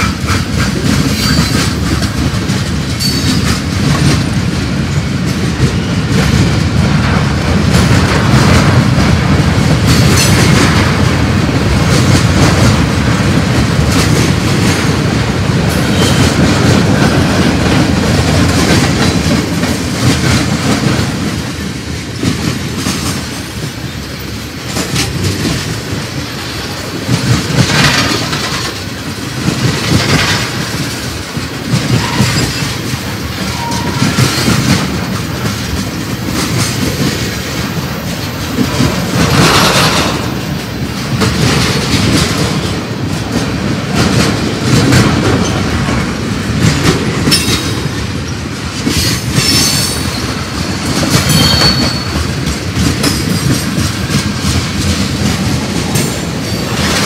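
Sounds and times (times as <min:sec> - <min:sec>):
freight train wheels rumbling: 0:00.0 - 0:57.0
high-pitched wheel squeals: 0:51.3 - 0:52.2.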